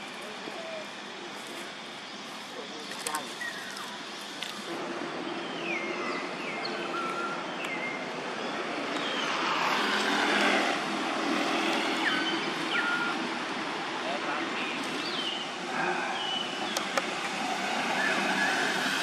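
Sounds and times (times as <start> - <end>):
distant engine passing: 4.2 - 19.0.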